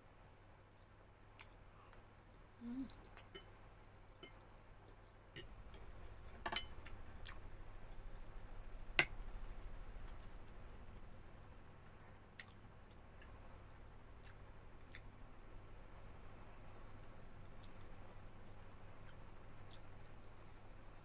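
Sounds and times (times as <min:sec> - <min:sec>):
fork clinking on ceramic dishes: 0:06.4 - 0:06.8.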